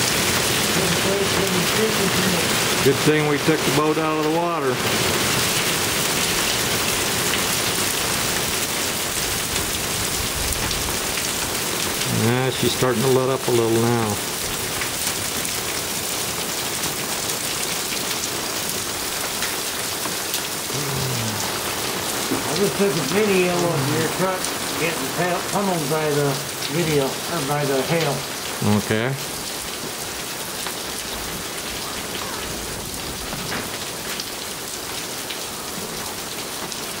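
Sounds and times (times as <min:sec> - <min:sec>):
rain hissing: 0:00.0 - 0:37.0
hailstones ticking on hard surfaces: 0:21.7 - 0:28.6, 0:29.2 - 0:37.0.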